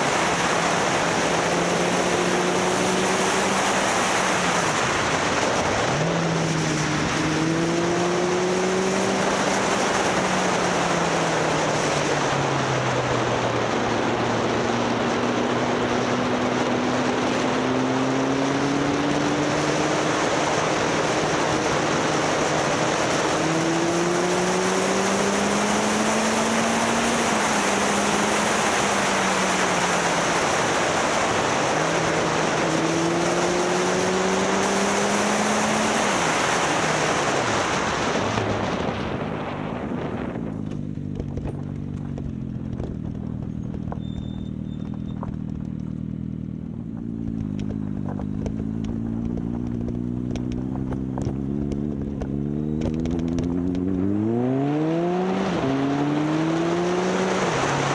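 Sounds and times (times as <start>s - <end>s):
wind noise: 0.0s - 45.8s
motorcycle engine running: 0.0s - 54.8s.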